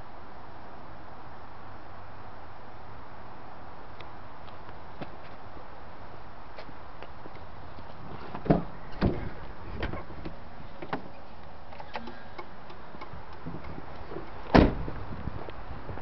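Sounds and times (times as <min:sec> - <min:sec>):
steady background noise: 0:00.0 - 0:16.0
truck door knocks and clicks: 0:08.3 - 0:11.2, 0:11.8 - 0:14.9
loud thump: 0:14.5 - 0:14.9.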